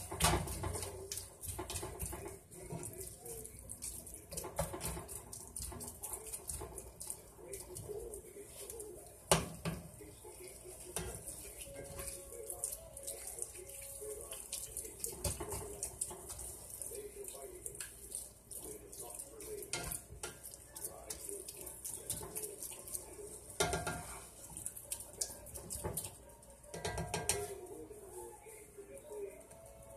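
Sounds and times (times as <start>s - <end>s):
spatula scraping a pan: 0.0s - 8.7s, 10.5s - 13.6s, 14.4s - 24.6s, 26.7s - 28.3s.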